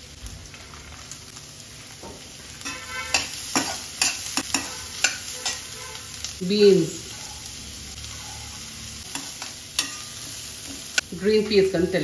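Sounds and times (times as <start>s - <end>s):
vegetables sizzling in oil: 0.0s - 12.0s
metal spatula scraping a wok: 2.6s - 6.1s, 8.0s - 11.0s.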